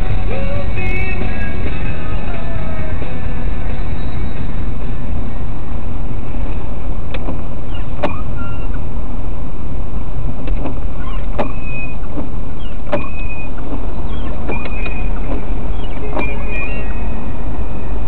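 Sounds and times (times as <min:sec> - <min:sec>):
car engine and road noise: 0:00.0 - 0:18.0
trim rattling clicks and squeaks: 0:06.4 - 0:08.9, 0:10.3 - 0:18.0.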